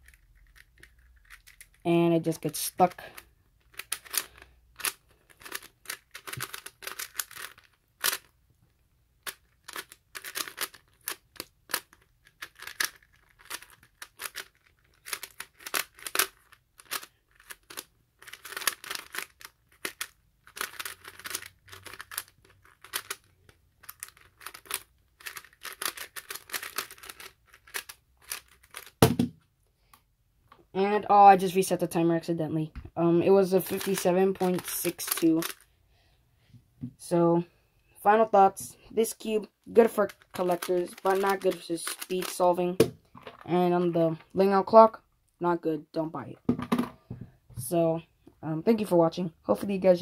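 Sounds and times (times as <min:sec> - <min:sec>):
plastic puzzle cube clicking: 0:00.0 - 0:01.8, 0:03.2 - 0:08.3, 0:09.2 - 0:29.1, 0:33.6 - 0:35.6, 0:39.8 - 0:42.4.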